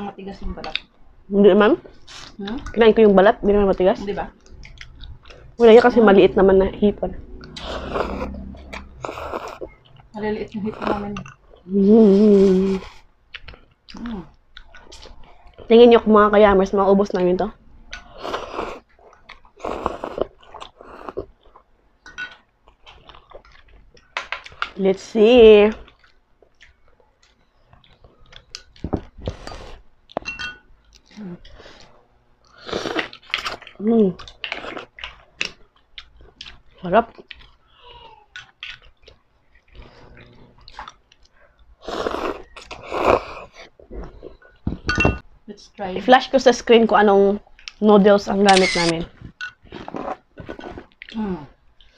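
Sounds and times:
person chewing: 0:04.4 - 0:05.6, 0:07.2 - 0:15.7, 0:17.8 - 0:24.8, 0:25.8 - 0:44.6, 0:48.4 - 0:51.9
person slurping noodles: 0:07.5 - 0:09.8, 0:10.6 - 0:11.2, 0:18.0 - 0:18.9, 0:19.6 - 0:21.3, 0:32.6 - 0:33.6, 0:41.8 - 0:43.7.

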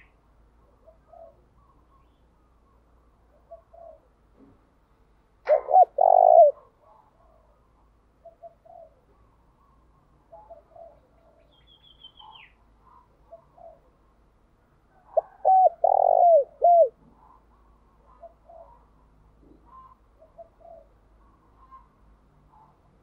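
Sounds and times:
dove cooing: 0:00.7 - 0:01.9, 0:03.3 - 0:04.2, 0:05.4 - 0:07.6, 0:08.2 - 0:11.5, 0:12.2 - 0:14.0, 0:14.9 - 0:18.9, 0:19.5 - 0:21.9
small bird chirp: 0:08.2 - 0:13.9.

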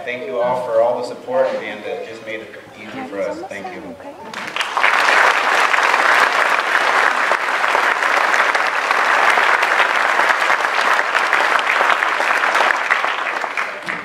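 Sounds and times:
audience applauding: 0:04.3 - 0:14.0.

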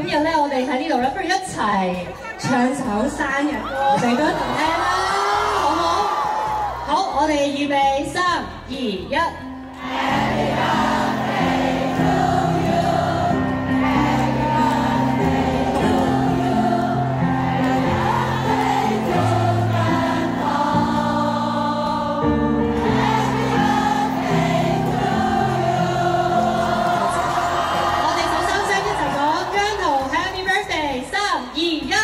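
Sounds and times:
backing music: 0:08.6 - 0:32.0
group singing: 0:09.8 - 0:28.6.

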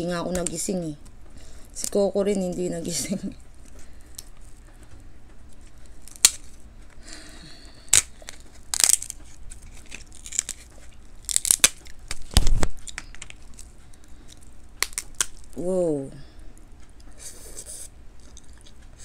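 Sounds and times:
crab shell cracking: 0:05.6 - 0:06.6, 0:07.5 - 0:15.6.

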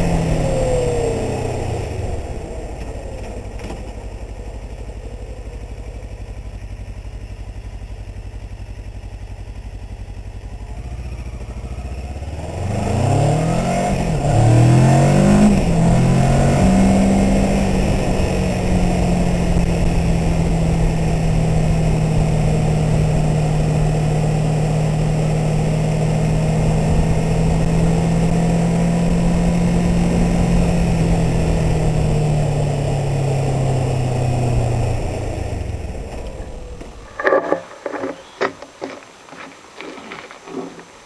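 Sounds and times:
motorcycle engine cruising: 0:00.0 - 0:41.0
sharp knocks and clicks: 0:37.1 - 0:40.9.

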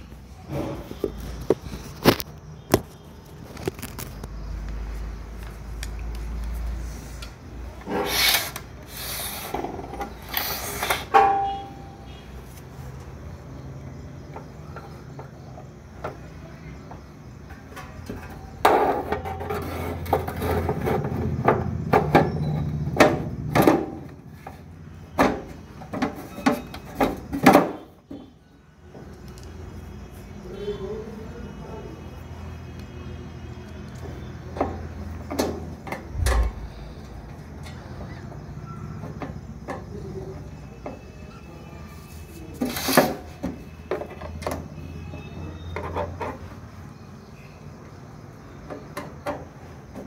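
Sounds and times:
rubbing and scraping on metal: 0:18.7 - 0:21.6
sharp knocks and clicks: 0:48.6 - 0:50.0.

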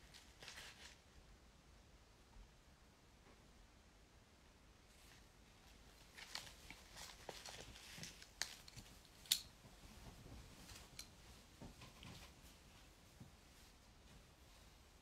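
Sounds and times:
faint clicks and taps: 0:06.1 - 0:13.4.

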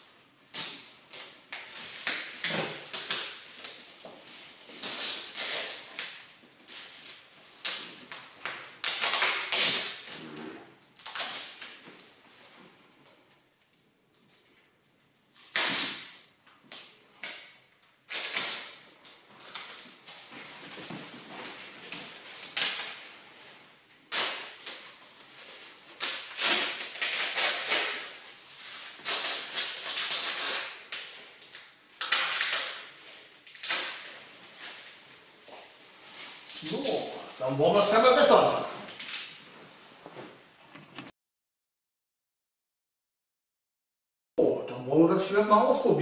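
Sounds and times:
adhesive tape ripping off roll: 0:00.5 - 0:03.9, 0:04.6 - 0:12.1, 0:15.3 - 0:20.2, 0:21.9 - 0:35.0, 0:36.1 - 0:39.4.

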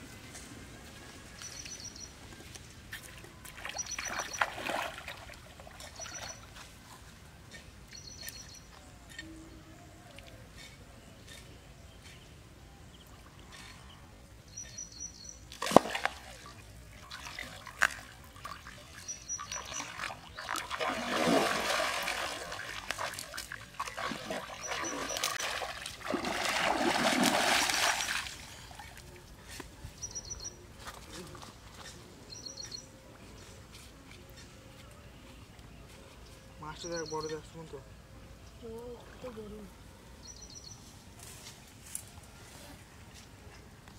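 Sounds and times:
water splashing: 0:03.0 - 0:06.5, 0:15.5 - 0:29.2.

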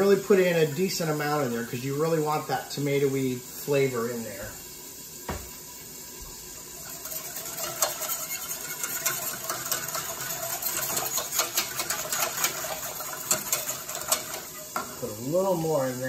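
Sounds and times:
whisk scraping metal saucepan: 0:06.6 - 0:16.0.

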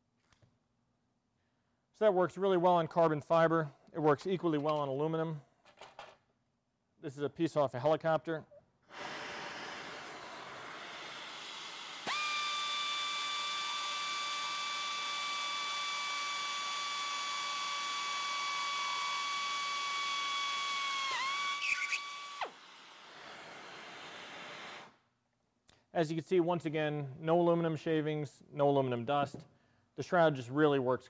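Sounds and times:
pneumatic drill whining: 0:08.9 - 0:25.0.

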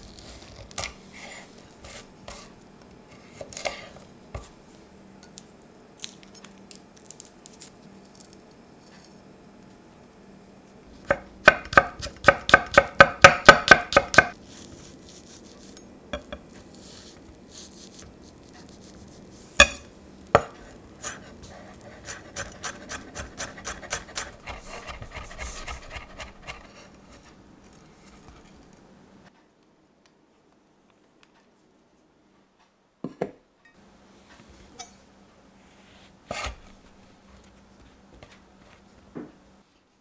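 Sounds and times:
knife chopping on wooden board: 0:11.1 - 0:14.4, 0:36.3 - 0:36.7.

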